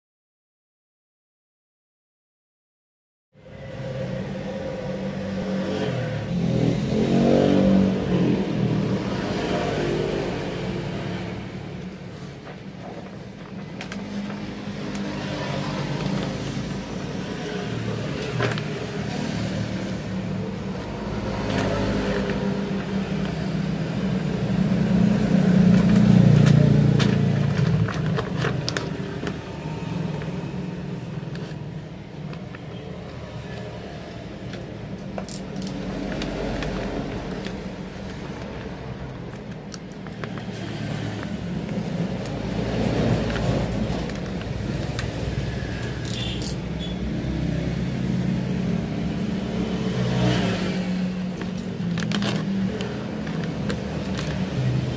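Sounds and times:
vehicle engines passing: 3.4 - 54.9.

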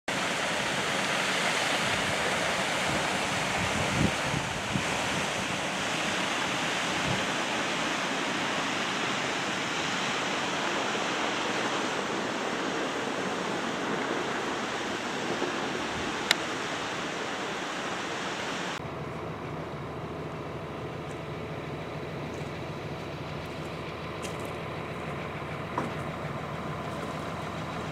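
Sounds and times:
water pouring down rock walls: 0.1 - 18.8.

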